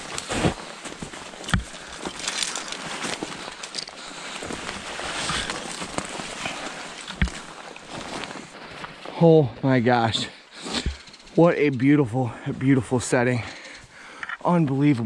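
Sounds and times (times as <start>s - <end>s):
branches brushing past: 0.0s - 9.2s
footsteps through leaf litter and twigs: 0.0s - 9.2s.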